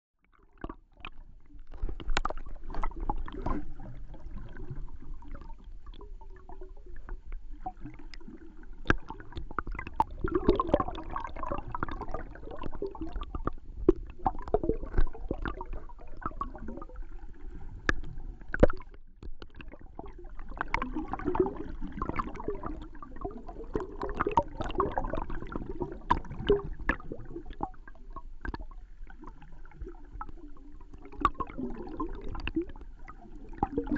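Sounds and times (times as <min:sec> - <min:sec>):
underwater bubbling and gurgling: 0:00.2 - 0:33.9.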